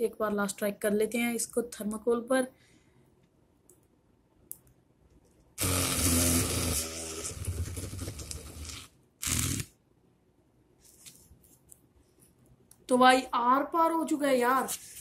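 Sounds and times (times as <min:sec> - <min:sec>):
small drill motor buzzing: 0:05.6 - 0:09.7.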